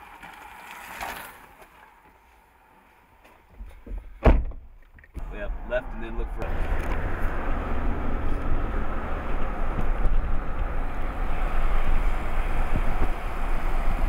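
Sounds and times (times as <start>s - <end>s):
low road rumble: 0.0s - 14.0s
wind on microphone: 6.9s - 14.0s.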